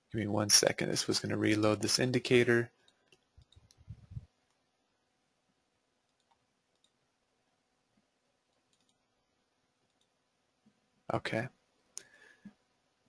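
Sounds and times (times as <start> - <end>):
faint clicks: 2.8 - 4.6, 6.0 - 7.0, 8.0 - 9.0, 9.8 - 10.8
faint low bumps: 3.4 - 4.3.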